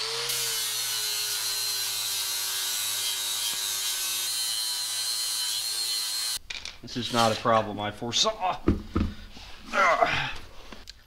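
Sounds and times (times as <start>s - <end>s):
electric grinder cutting metal: 0.0s - 6.4s.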